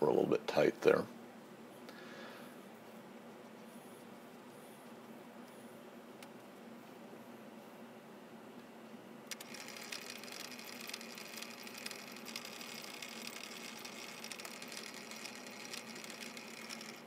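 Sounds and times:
low steady hum: 0.0s - 17.0s
lathe chuck hissing with ticks: 9.3s - 17.0s.

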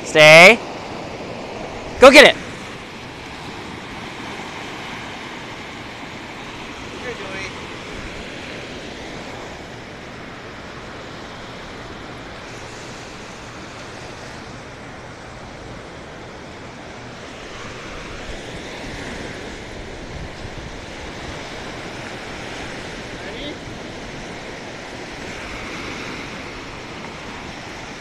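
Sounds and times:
waves washing on sandy shore: 0.0s - 28.0s
wind buffeting microphone: 18.1s - 28.0s.

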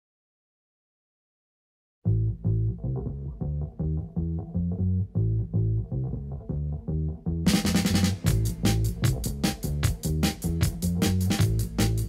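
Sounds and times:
low bass line: 2.0s - 12.0s
quick drum beat: 7.5s - 12.0s.

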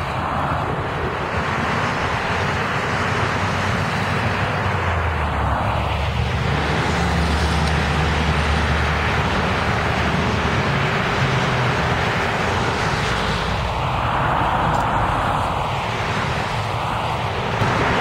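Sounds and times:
bus diesel engine passing: 0.0s - 18.0s
highway traffic and tyre noise: 0.0s - 18.0s.

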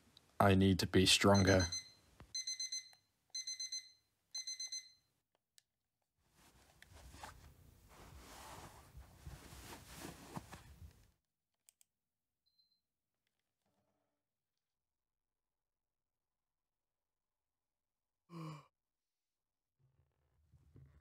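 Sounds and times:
alarm clock beeping: 1.3s - 5.1s
bedding rustling: 6.3s - 11.1s.

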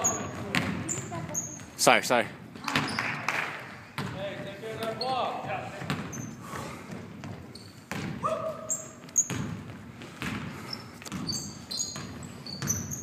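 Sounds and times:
sneakers squeaking: 0.0s - 1.8s, 2.5s - 13.0s
basketball bouncing on hardwood floor: 0.1s - 1.2s, 4.0s - 4.2s, 5.4s - 6.3s, 6.9s - 13.0s.

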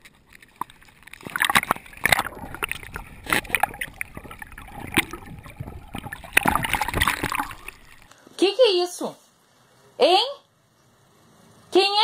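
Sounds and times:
water sloshing and gurgling: 0.0s - 8.1s
dog splashing into water: 0.3s - 8.1s.

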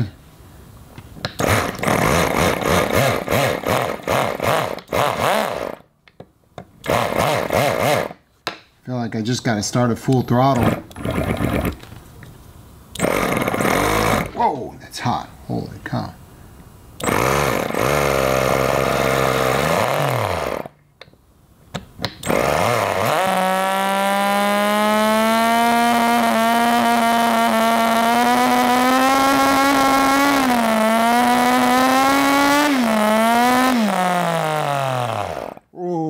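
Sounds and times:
miniature engine buzzing: 1.4s - 5.8s, 6.8s - 8.2s, 10.6s - 11.8s, 13.0s - 14.4s, 17.0s - 20.8s, 22.2s - 35.6s.

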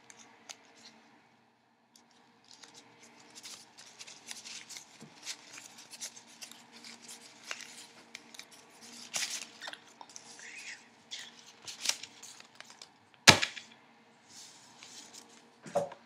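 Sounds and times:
paper crinkling and rustling: 2.0s - 13.6s, 14.4s - 15.5s.

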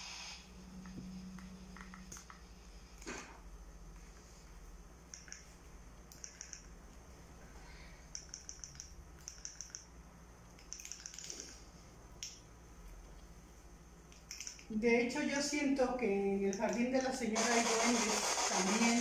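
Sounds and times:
rapid high-pitched clicks: 5.1s - 6.8s, 8.1s - 9.9s, 10.6s - 11.5s, 14.1s - 14.7s, 16.5s - 19.0s.

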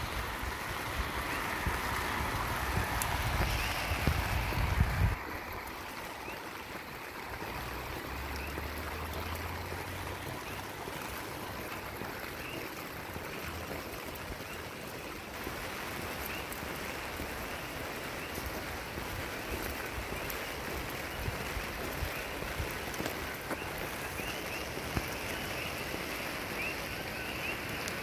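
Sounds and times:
steady rain: 0.0s - 28.0s
water trickling on road: 0.0s - 28.0s.

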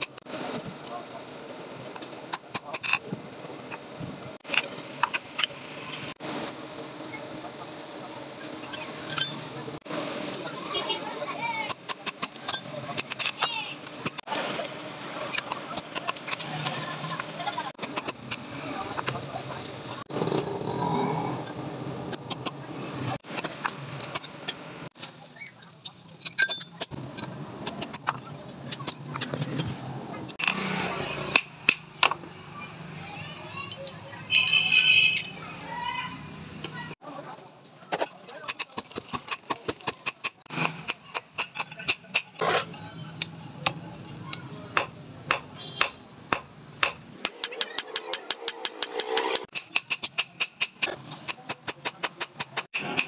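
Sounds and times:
hammer striking blade on anvil: 44.8s - 50.9s.

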